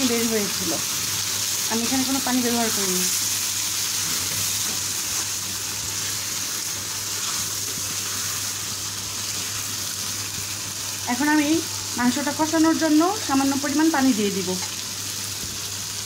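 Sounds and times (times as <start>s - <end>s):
chicken sizzling in pan: 0.0s - 16.0s
spatula stirring: 3.8s - 9.6s.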